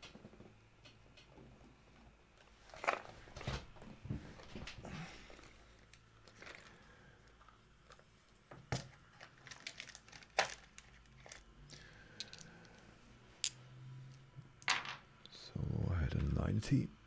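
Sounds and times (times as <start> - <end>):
dice rolling on a desk: 12.2 - 12.8, 14.6 - 15.0.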